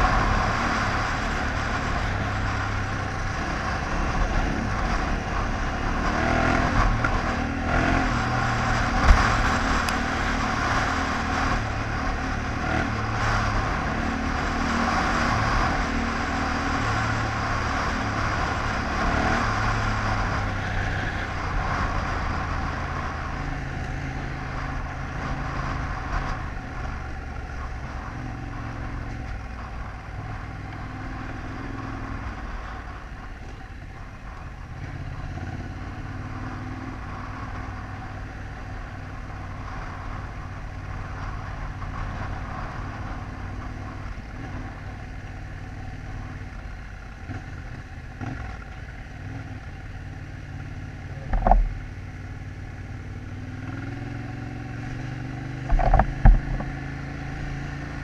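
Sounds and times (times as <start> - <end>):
motorcycle engine running: 0.0 - 58.0
wind noise: 55.4 - 57.6.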